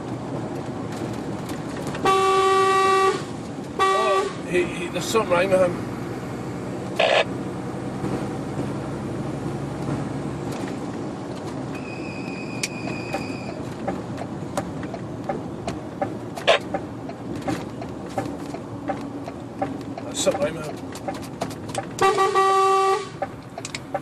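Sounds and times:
lorry engine and road noise: 0.0s - 24.0s
small rattles and clicks: 15.6s - 22.0s.

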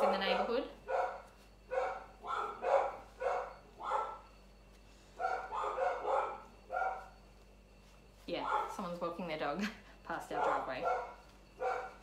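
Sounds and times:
dogs barking: 0.0s - 4.3s, 5.2s - 7.2s, 8.4s - 8.8s, 10.3s - 12.0s.

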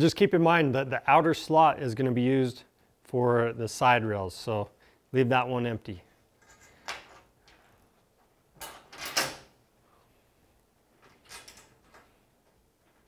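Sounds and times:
metal parts scraping clatter: 6.4s - 7.3s.

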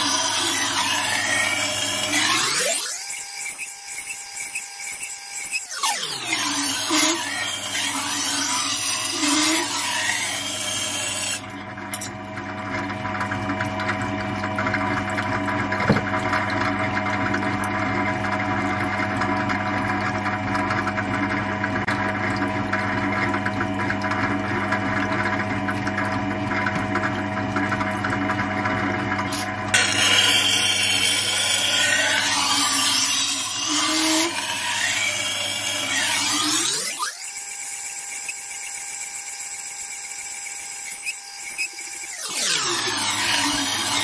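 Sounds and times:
sharpening wheel humming: 0.0s - 11.4s, 29.3s - 44.0s.

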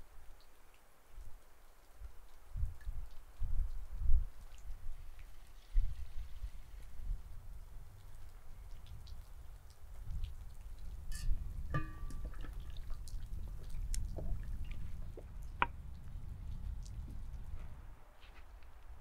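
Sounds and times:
small clicks and drips: 0.0s - 19.0s.

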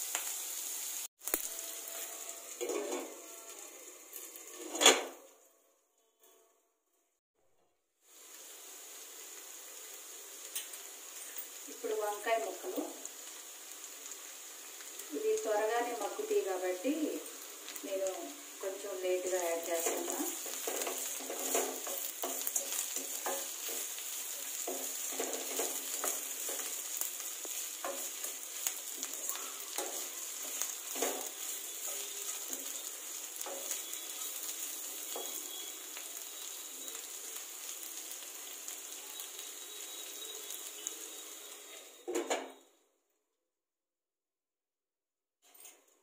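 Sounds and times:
vegetables sizzling in hot oil: 0.0s - 4.6s, 8.0s - 42.8s
wooden spatula scraping pan: 19.4s - 32.8s.

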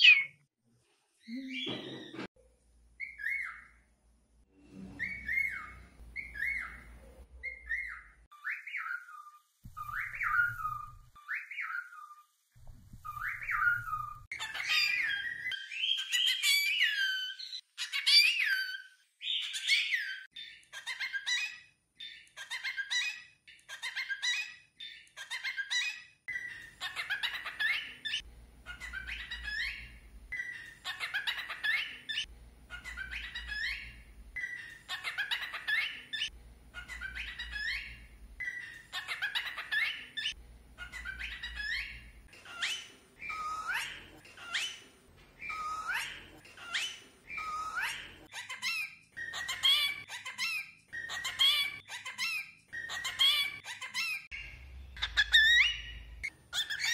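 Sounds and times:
cockatiel whistling and chattering: 0.0s - 0.4s, 3.0s - 3.8s, 5.0s - 12.2s, 13.0s - 56.9s.

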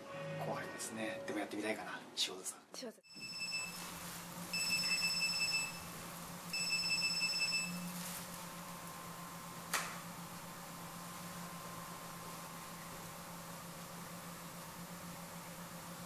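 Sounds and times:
electronic telephone ringing: 3.0s - 3.9s, 4.5s - 5.9s, 6.5s - 7.8s.

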